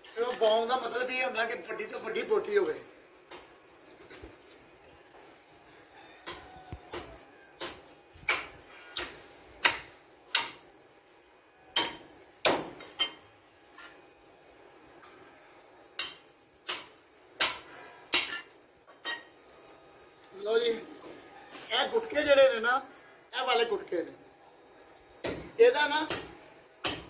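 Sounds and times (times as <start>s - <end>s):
meat cleaver chopping on wood: 6.2s - 10.6s, 11.8s - 12.8s, 25.2s - 27.0s.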